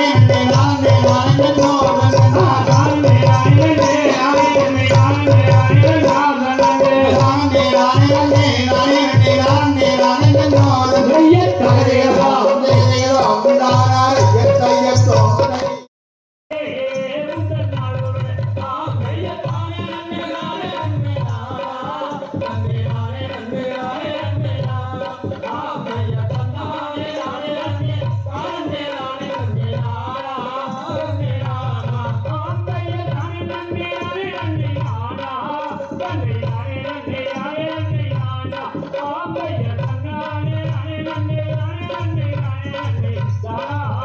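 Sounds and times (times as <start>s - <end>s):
steady drum beat: 0.0s - 15.8s
folk singing: 0.0s - 15.9s, 16.5s - 44.0s.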